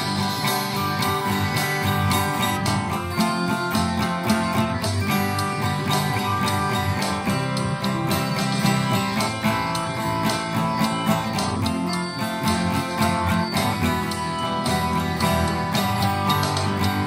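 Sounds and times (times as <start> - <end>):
strummed guitar music: 0.0 - 17.0.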